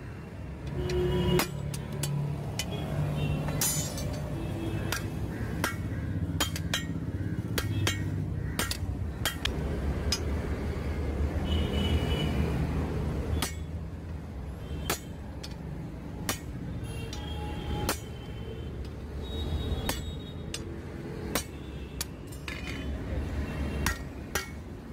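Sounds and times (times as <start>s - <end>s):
hammer striking steel on anvil: 3.5s - 4.3s, 4.9s - 10.4s, 13.4s - 13.7s, 23.8s - 24.7s.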